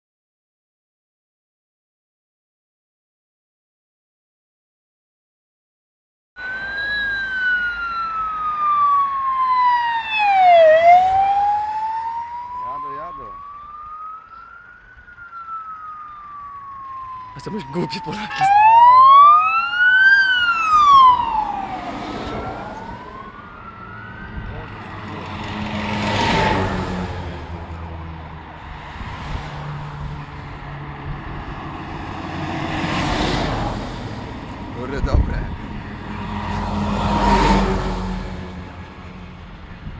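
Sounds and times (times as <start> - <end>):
vehicle siren wailing: 6.4 - 28.2.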